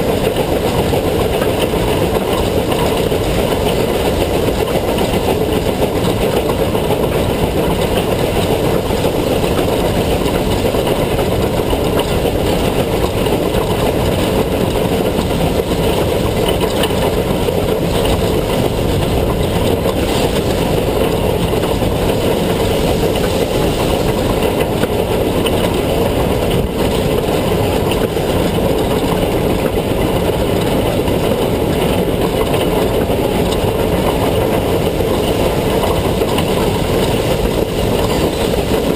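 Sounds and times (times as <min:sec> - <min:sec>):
steam locomotive rumbling: 0:00.0 - 0:38.9
wind on microphone: 0:00.0 - 0:38.9.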